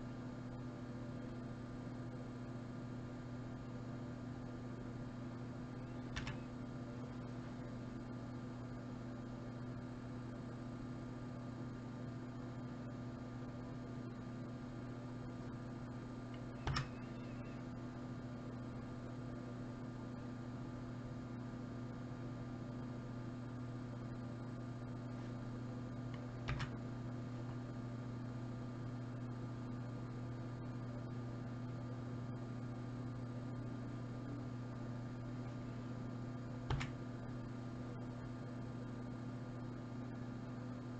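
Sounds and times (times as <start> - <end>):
electrical mains hum: 0.0 - 40.9
computer key click: 6.1 - 6.5, 16.4 - 17.0, 26.2 - 26.8, 36.7 - 37.0.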